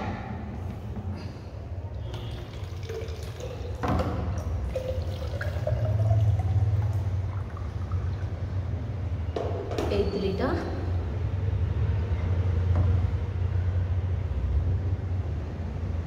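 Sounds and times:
water pouring into plastic bottle: 0:01.9 - 0:08.7.

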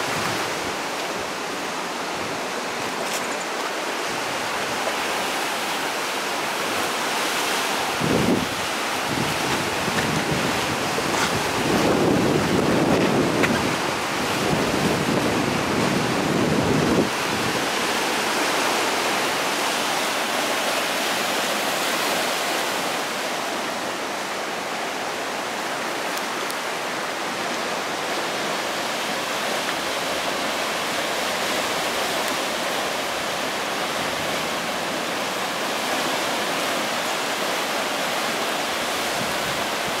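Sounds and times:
waves breaking on rocky shore: 0:00.0 - 0:40.0
wind buffeting microphone: 0:07.9 - 0:18.0.

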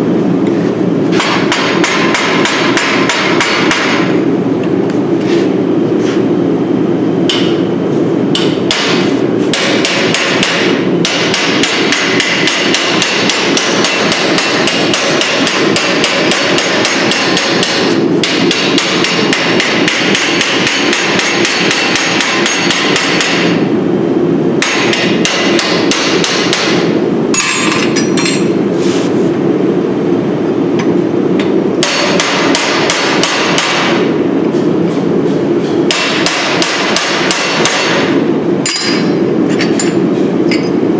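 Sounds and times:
hammer striking metal: 0:01.1 - 0:04.1, 0:07.3 - 0:07.7, 0:08.3 - 0:23.6, 0:24.6 - 0:28.5, 0:31.8 - 0:34.1, 0:35.9 - 0:40.8.

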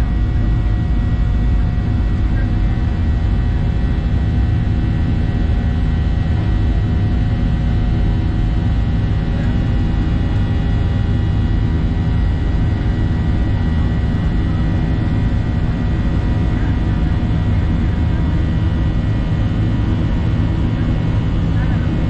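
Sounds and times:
jet engine roar and airflow: 0:00.0 - 0:22.0.

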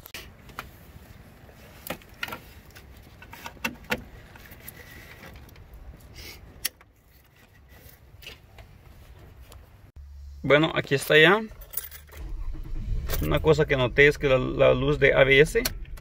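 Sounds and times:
faint low rumble: 0:10.0 - 0:16.0.

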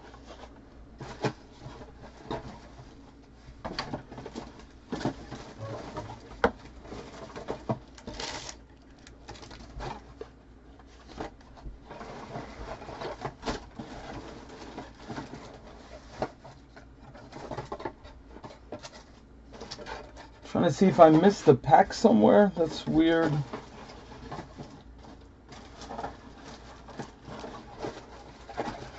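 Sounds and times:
low steady hum: 0:00.0 - 0:28.9
packs and wrappers rustling: 0:03.7 - 0:10.3.

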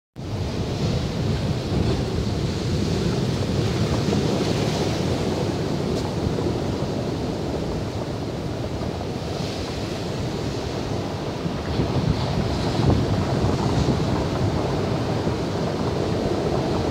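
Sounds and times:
surf breaking on shore: 0:00.2 - 0:16.9
wind rumble on microphone: 0:00.2 - 0:16.9.

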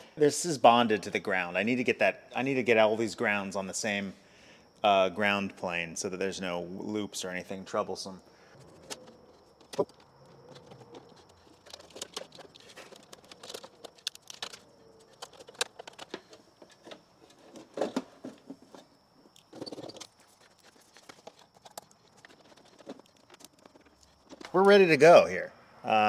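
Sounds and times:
wires and metal parts clicking: 0:08.5 - 0:24.9.

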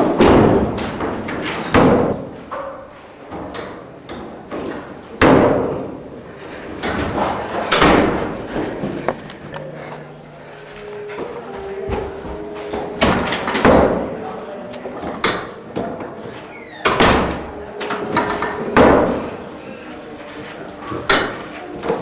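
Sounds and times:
door banging shut: 0:00.1 - 0:02.4, 0:16.6 - 0:17.5, 0:18.1 - 0:19.3
high door squeak: 0:01.4 - 0:02.2, 0:05.0 - 0:05.5, 0:13.0 - 0:14.1, 0:16.5 - 0:19.3.

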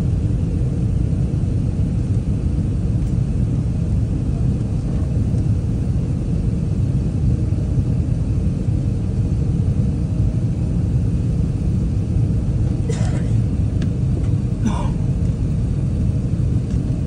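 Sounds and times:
aircraft cabin engine roar: 0:00.0 - 0:17.0.

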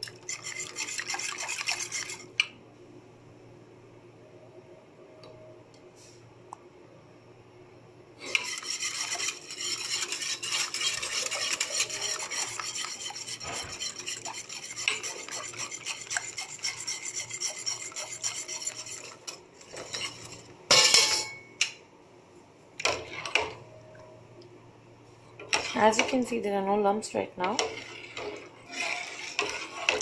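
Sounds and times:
whisk scraping metal pan: 0:00.0 - 0:02.3, 0:08.2 - 0:20.5, 0:27.4 - 0:30.0.

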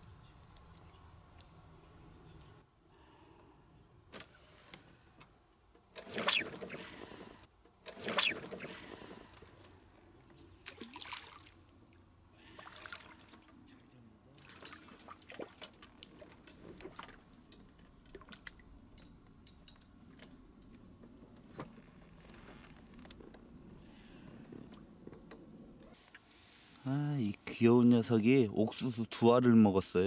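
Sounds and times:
water splashes and drips: 0:10.6 - 0:19.2.

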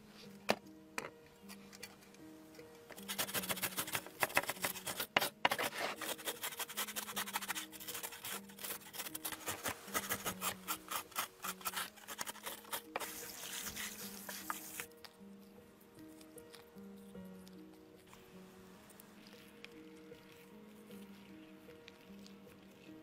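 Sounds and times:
faint background music: 0:00.0 - 0:23.0
grater scraping fish scales: 0:03.0 - 0:14.9.

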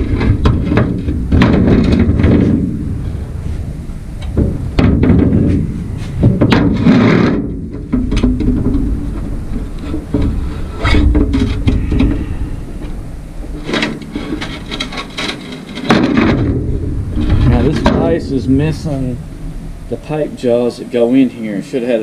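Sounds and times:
metal clunks and knocks: 0:00.0 - 0:02.9, 0:04.2 - 0:19.8
metal scraping on steel: 0:09.1 - 0:20.6.

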